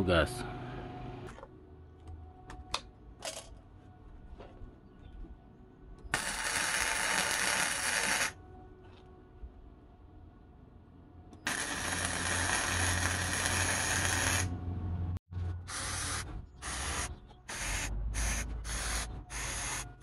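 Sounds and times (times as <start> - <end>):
welding arc crackling: 6.1 - 8.4, 11.5 - 14.5, 15.7 - 20.0.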